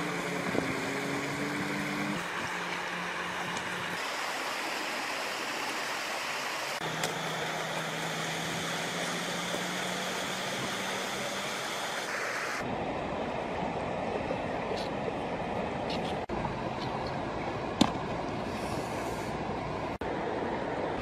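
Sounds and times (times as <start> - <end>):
river rushing: 0.0 - 15.8.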